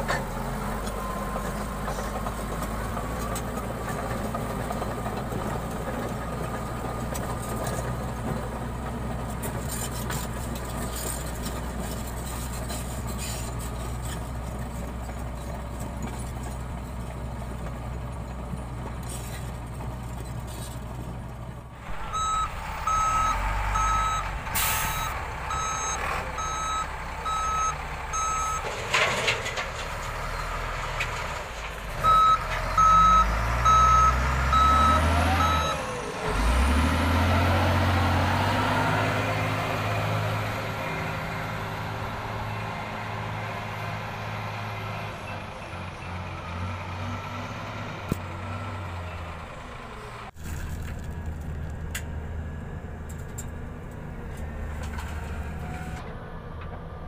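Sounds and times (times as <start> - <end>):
bulldozer diesel engine running: 0.0 - 57.0
diesel engines revving: 0.0 - 57.0
reversing alarm beeping: 21.9 - 28.7, 32.0 - 35.9.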